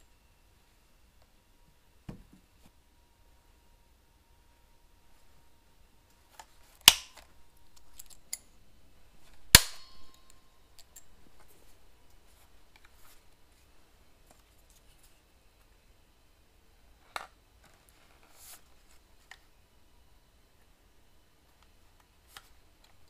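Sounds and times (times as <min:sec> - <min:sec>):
metallic ring: 0:09.5 - 0:11.3.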